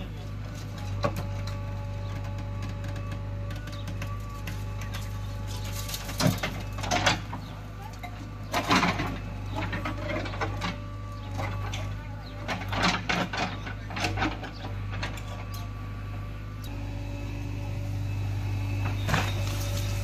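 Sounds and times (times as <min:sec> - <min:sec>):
diesel engine running: 0:00.0 - 0:20.0
bucket clatter and falling soil: 0:18.9 - 0:20.0.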